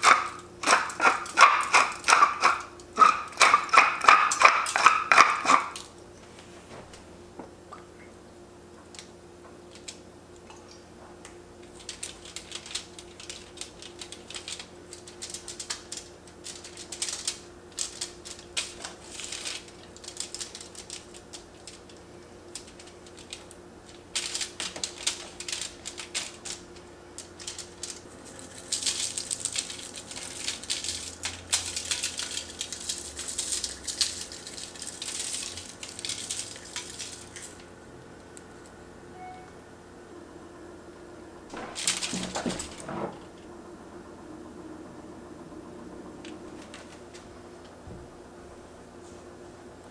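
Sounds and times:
seasoning shaker shaking: 0.0s - 5.8s, 11.7s - 37.6s
aluminium foil crinkling: 0.0s - 5.9s, 9.0s - 10.0s, 11.6s - 37.7s, 41.5s - 43.0s, 46.5s - 47.3s
faint steady hum: 0.0s - 49.9s.

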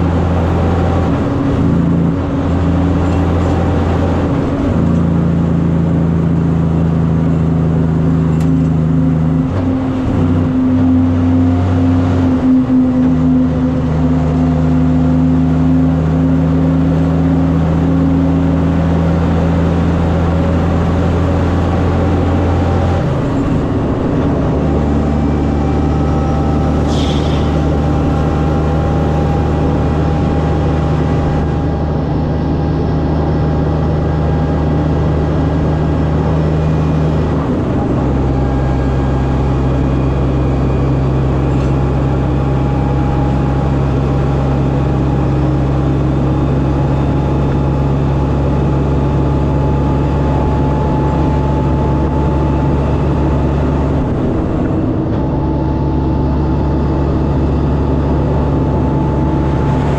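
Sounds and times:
truck diesel engine running: 0.0s - 59.9s.

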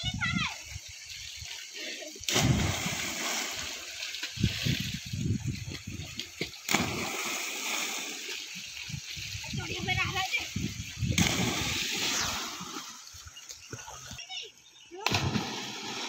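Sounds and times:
water sloshing: 1.3s - 16.0s
splashes of jumping into water: 1.8s - 4.9s, 5.7s - 8.4s, 11.0s - 14.3s, 15.0s - 16.0s.

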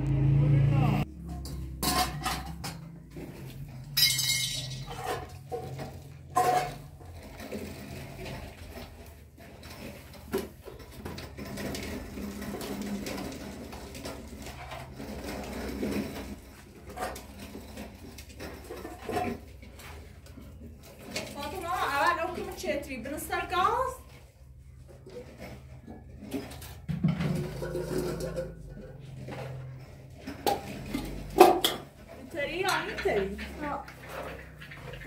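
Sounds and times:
kitchenware clinking and knocking: 1.1s - 7.2s, 25.0s - 35.0s.

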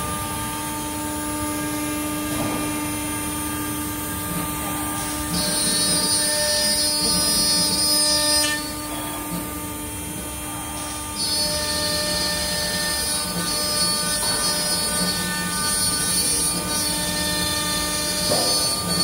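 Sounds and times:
router spindle whining: 3.3s - 19.0s
router bit milling wood: 4.9s - 8.9s, 10.7s - 19.0s.

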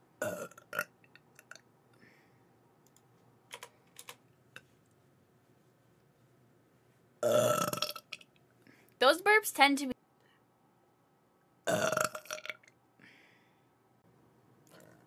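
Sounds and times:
woman burping: 7.2s - 8.0s, 11.7s - 12.6s.

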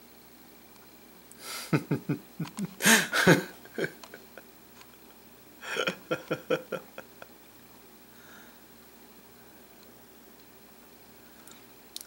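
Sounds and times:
man making vocal sounds: 5.7s - 7.0s.

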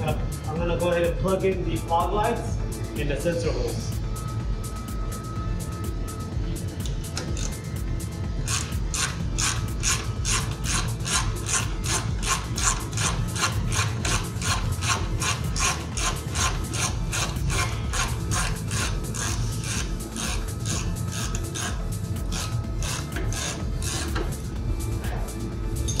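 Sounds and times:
ratchet wrench clicking: 6.8s - 7.6s, 8.4s - 24.5s.

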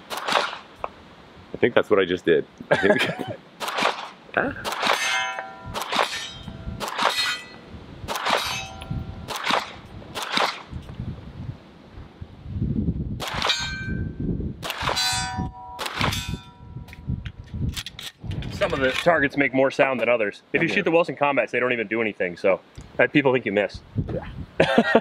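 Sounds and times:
pistol shots: 0.0s - 0.7s, 3.6s - 7.5s, 8.1s - 10.7s, 13.2s - 13.7s, 14.6s - 16.4s
steel target clanging: 3.8s - 9.4s, 13.3s - 14.1s, 14.8s - 16.8s.

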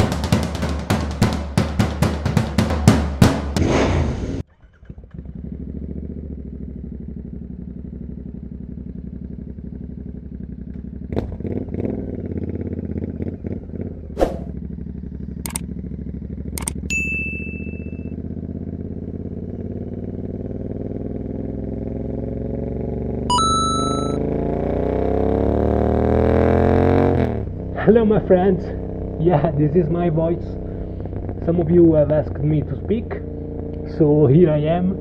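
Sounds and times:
motorcycle engine idling: 0.0s - 3.3s, 4.5s - 24.4s, 27.4s - 35.0s
drum kit music: 0.0s - 3.6s
sharp clicks: 15.4s - 15.7s, 16.5s - 16.9s
bright notification chime: 16.9s - 18.0s, 23.3s - 24.2s.

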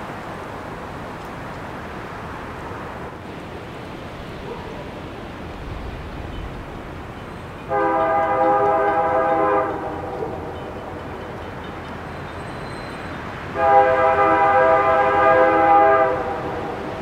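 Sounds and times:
train rumble: 0.0s - 17.0s
locomotive horn blast: 7.6s - 11.5s, 12.5s - 17.0s.

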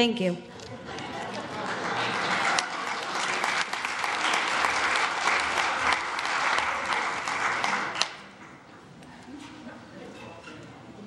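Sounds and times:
congregation applauding: 1.0s - 8.7s.

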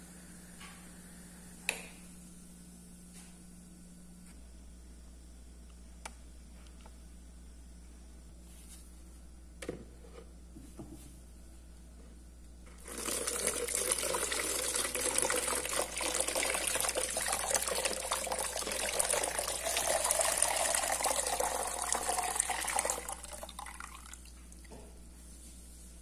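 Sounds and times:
water pouring into jug: 12.8s - 24.4s.

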